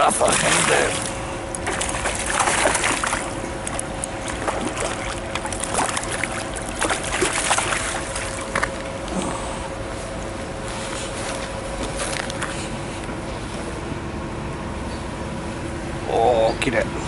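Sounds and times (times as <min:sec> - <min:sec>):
faint hum: 0:00.0 - 0:17.0
fish splashing in water: 0:00.2 - 0:09.0.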